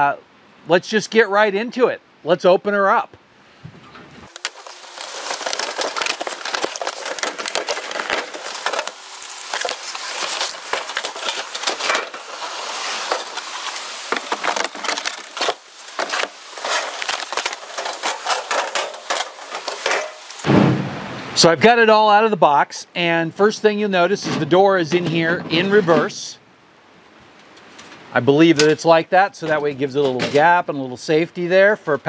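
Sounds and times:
cardboard box crackling and scraping: 4.3s - 20.4s.

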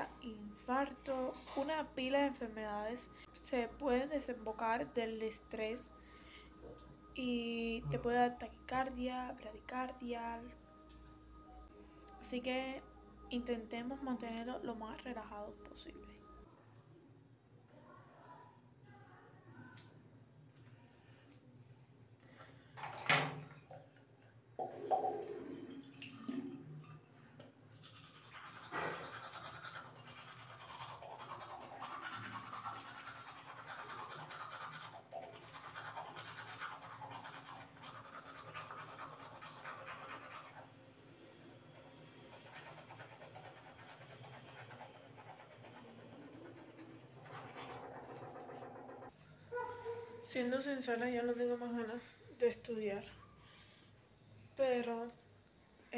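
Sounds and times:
toothbrush scrubbing teeth: 0.0s - 7.1s, 27.7s - 49.1s.

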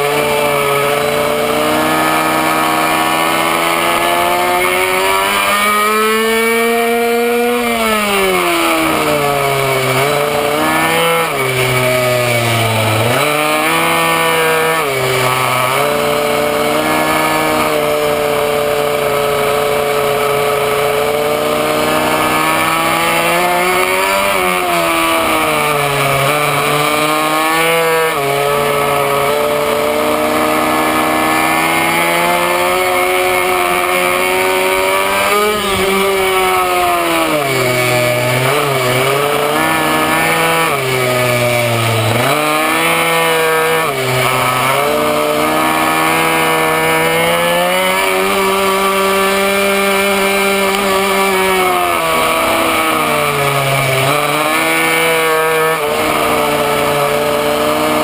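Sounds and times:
small two-stroke engine revving: 0.0s - 58.0s.

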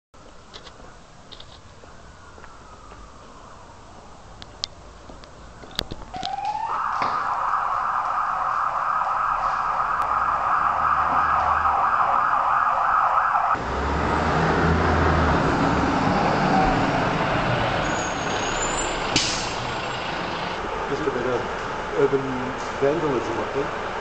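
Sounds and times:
emergency vehicle siren wailing: 1.3s - 24.0s
large vehicle engine rumbling: 8.1s - 12.6s, 13.4s - 24.0s.

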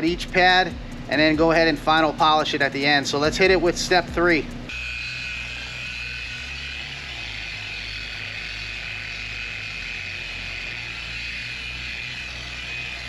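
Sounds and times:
orbital polisher whining: 4.7s - 13.0s.

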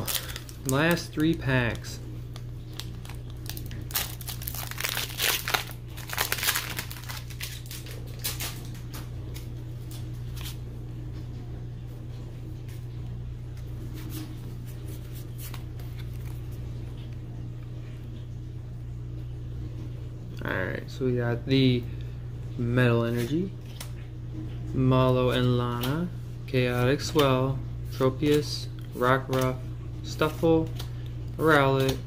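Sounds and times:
foil wrapper crinkling: 0.0s - 8.8s.

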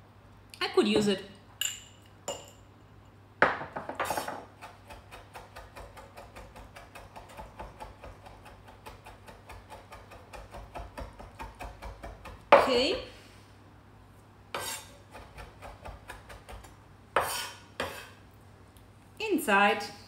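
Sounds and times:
knife chopping on wooden board: 3.5s - 12.9s, 14.6s - 18.1s.

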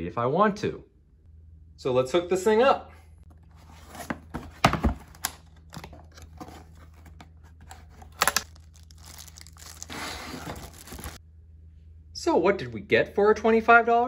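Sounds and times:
cardboard box being opened: 3.5s - 11.2s
plastic wrapper crinkling: 5.4s - 11.2s.

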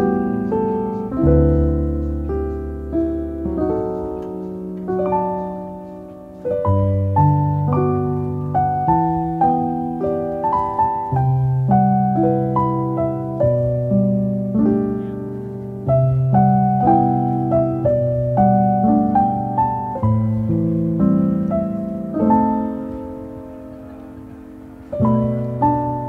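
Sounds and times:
solo piano music: 0.0s - 26.0s.

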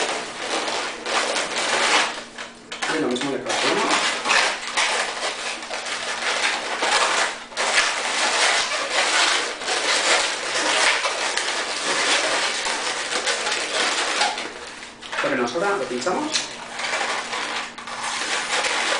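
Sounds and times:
balloon rubber squeaking: 0.0s - 18.9s.

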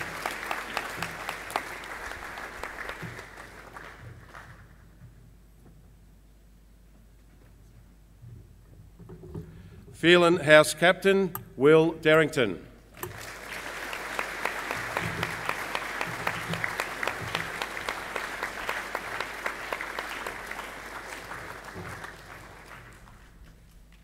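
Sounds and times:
audience applauding: 0.0s - 4.8s, 13.0s - 24.0s.

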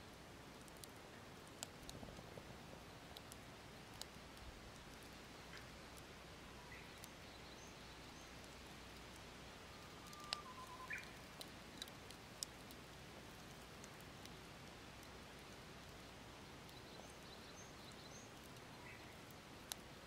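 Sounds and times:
wood fire crackling: 0.0s - 20.0s
faint bird chirps: 6.4s - 8.5s, 9.6s - 11.3s, 16.5s - 19.2s.

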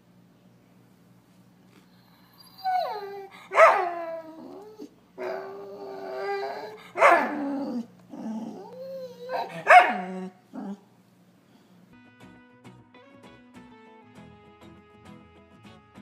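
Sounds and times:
dog whining: 1.9s - 10.9s
dog yelping: 2.3s - 10.8s
dog grumbling: 2.4s - 10.9s.

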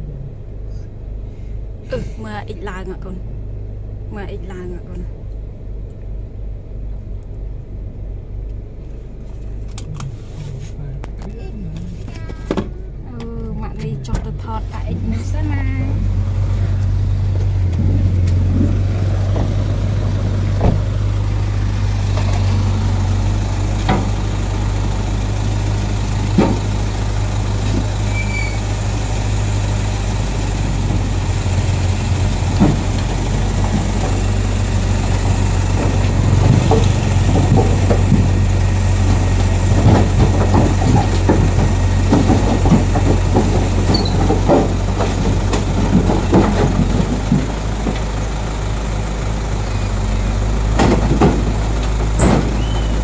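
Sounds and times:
excavator diesel engine running: 0.0s - 53.0s
metal knocks and clanks: 17.4s - 28.7s, 30.3s - 48.2s, 50.7s - 53.0s.

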